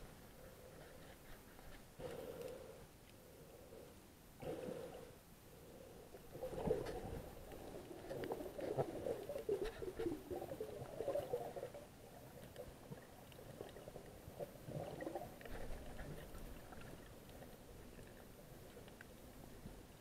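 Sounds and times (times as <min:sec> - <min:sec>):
faint clicks: 0:00.8 - 0:03.2, 0:15.4 - 0:19.9.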